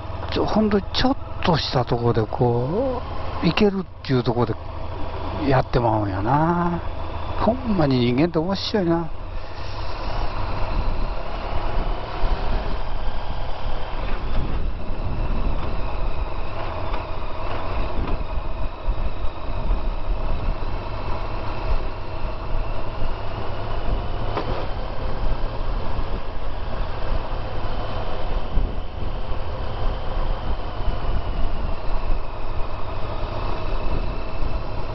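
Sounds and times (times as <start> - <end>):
motorcycle engine running: 0.0 - 34.9
wind rumble on microphone: 9.0 - 34.9.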